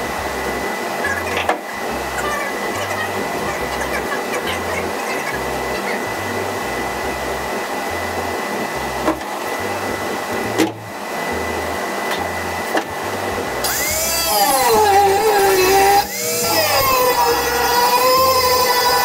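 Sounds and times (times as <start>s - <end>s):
shop hum: 0.0s - 19.0s
angle grinder cutting sheet metal: 12.2s - 19.0s.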